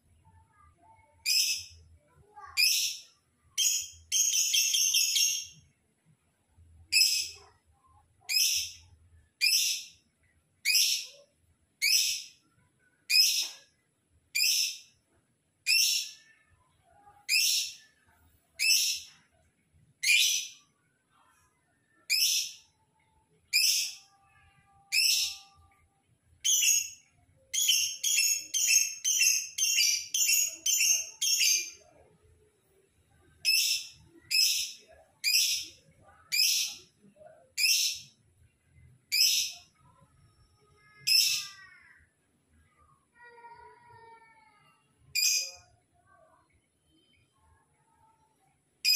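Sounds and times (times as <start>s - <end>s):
bird chirping: 2.4s - 5.6s, 18.6s - 19.2s, 23.5s - 25.7s, 33.2s - 38.2s.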